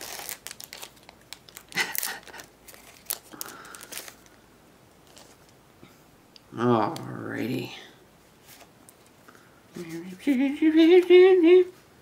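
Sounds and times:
foil wrapper crinkling and tearing: 0.0s - 4.4s.

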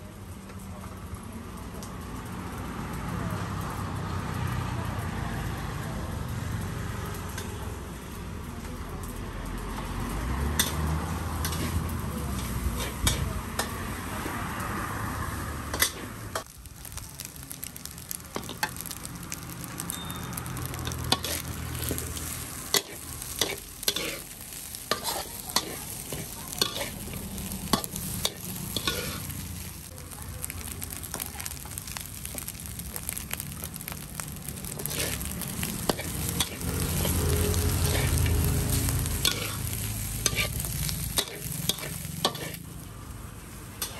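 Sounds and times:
steady sizzle: 0.0s - 43.9s
metal spatula scraping steel wok: 10.6s - 14.0s, 15.7s - 16.5s, 19.8s - 29.7s, 34.7s - 42.7s.

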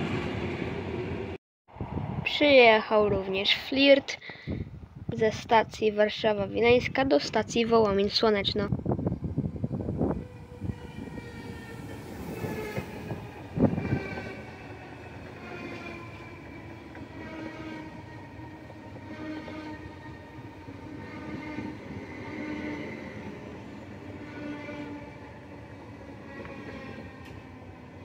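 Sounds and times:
train wheels rumbling: 8.7s - 28.0s
electric train drive whining: 8.8s - 28.0s.

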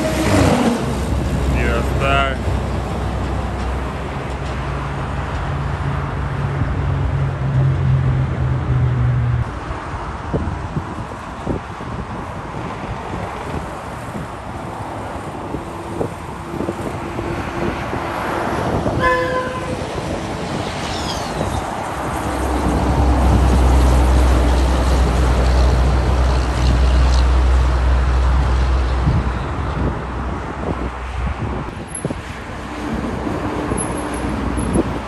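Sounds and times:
road traffic: 0.0s - 35.0s
vehicle horn honk: 19.0s - 19.8s.

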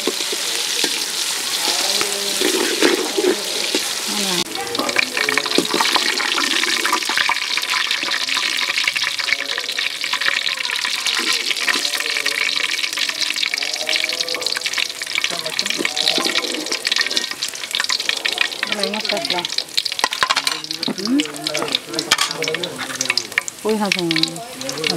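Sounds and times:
onions sizzling in oil: 0.0s - 24.9s
ladle scraping and clicking on pot: 14.5s - 23.5s.

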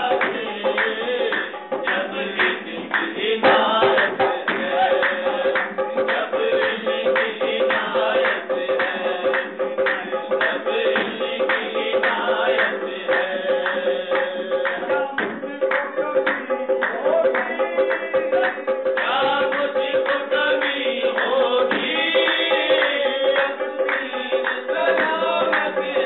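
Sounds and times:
hand-clapping: 0.0s - 26.0s
men singing: 0.0s - 26.0s.

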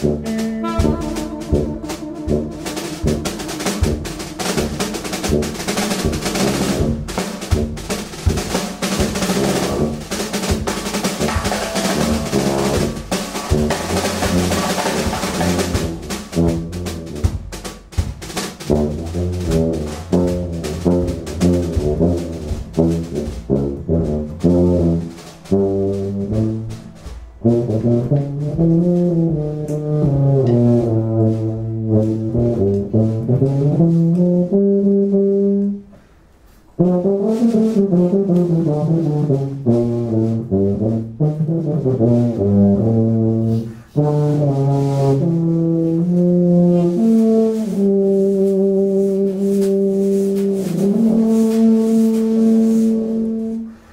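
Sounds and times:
live band playing: 0.0s - 34.2s, 45.9s - 53.9s
tuba melody: 0.0s - 36.0s, 36.6s - 53.9s
drums: 0.0s - 53.9s.

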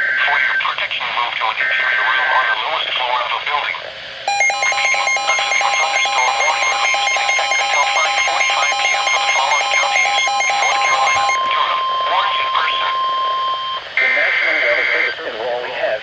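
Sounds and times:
steady tone: 4.3s - 14.0s
rapid electronic alarm beeping: 4.3s - 15.2s.

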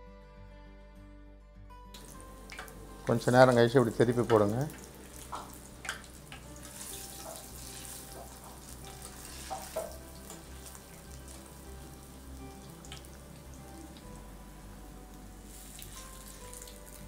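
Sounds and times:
food sizzling in hot oil: 2.0s - 17.0s.

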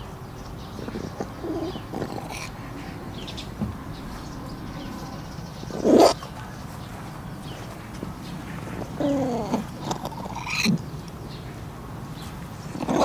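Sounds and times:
cat chewing on bone: 0.8s - 3.0s.

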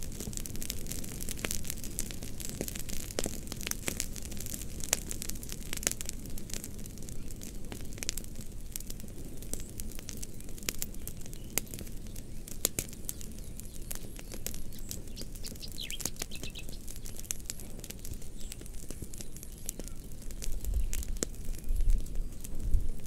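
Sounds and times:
fire crackling and popping: 0.0s - 23.0s
low rumble of flames: 0.0s - 23.0s
bird chirps: 13.1s - 17.3s, 19.2s - 21.0s.

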